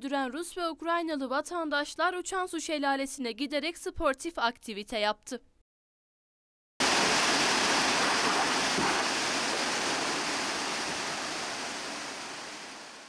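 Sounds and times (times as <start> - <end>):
waterfall and river rushing: 6.8 - 13.0.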